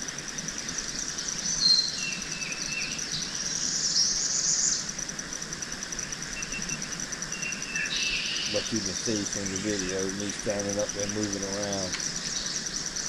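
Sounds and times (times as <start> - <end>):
insects pulsing drone: 0.0 - 13.0
birds calling: 6.3 - 13.0.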